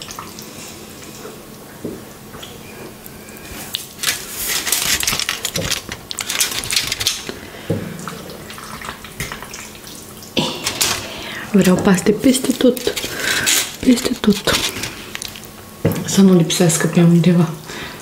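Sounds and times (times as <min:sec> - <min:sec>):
wet squishing of food: 0:00.0 - 0:15.9
aluminium foil crackling: 0:03.5 - 0:07.4, 0:10.4 - 0:15.7.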